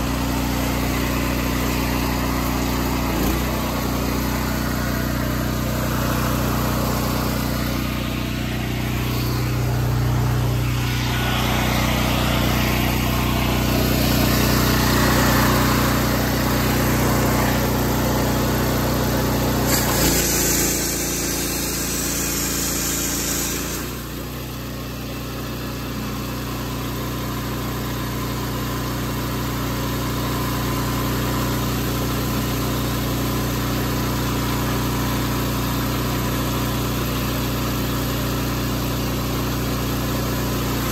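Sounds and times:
small gasoline engine running: 0.0 - 40.9
water spraying: 0.2 - 24.2.

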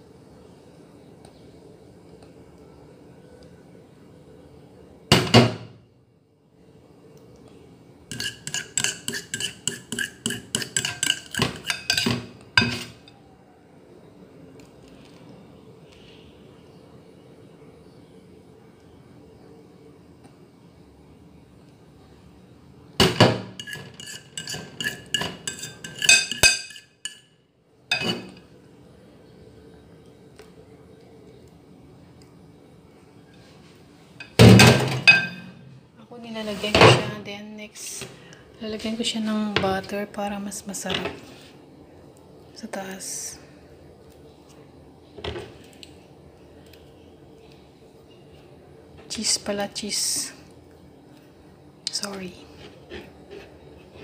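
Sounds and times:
metal kitchenware clattering: 8.1 - 13.1, 23.0 - 27.2, 27.9 - 28.4, 34.2 - 35.6.

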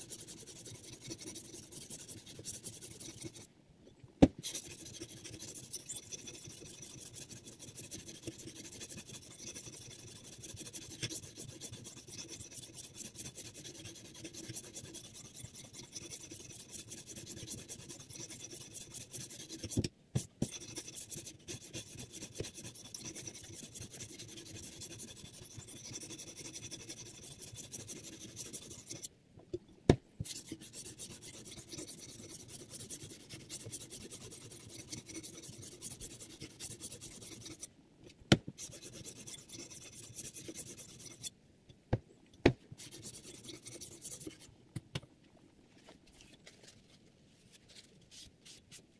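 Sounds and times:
sharpening stone rasping on knife: 0.0 - 3.5, 4.4 - 19.8, 20.4 - 29.1, 30.2 - 37.7, 38.6 - 41.3, 42.8 - 44.5.

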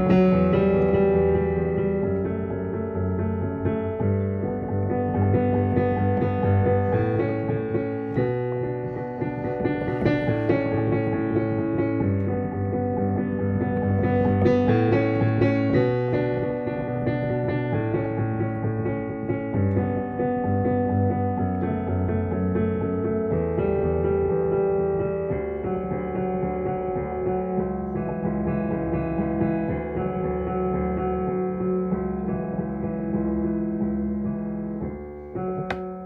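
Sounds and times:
piano playing: 0.0 - 36.0.

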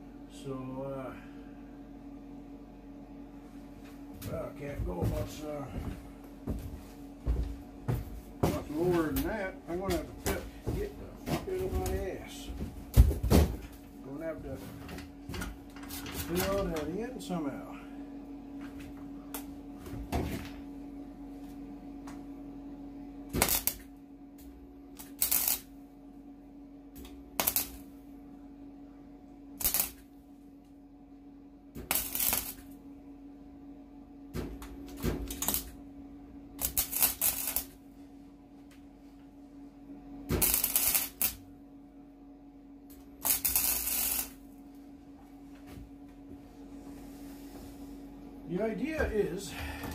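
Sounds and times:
steady hum: 0.0 - 49.9
welder tack weld bursts: 23.3 - 23.8, 25.0 - 25.7, 27.4 - 27.9, 29.6 - 30.1, 31.8 - 32.7, 35.3 - 35.7, 36.6 - 37.8, 40.4 - 41.4, 43.2 - 44.4.

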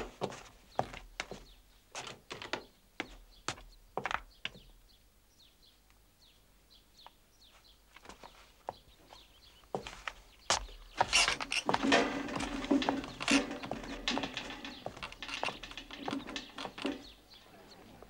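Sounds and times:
small birds chirping: 0.2 - 18.0
sharp clicks and knocks: 10.5 - 17.4.

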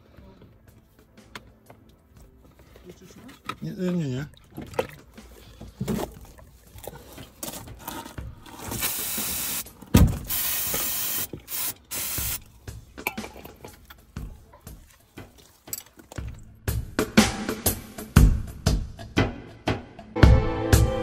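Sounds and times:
aerosol spray can hissing: 8.8 - 9.6, 10.3 - 12.4.

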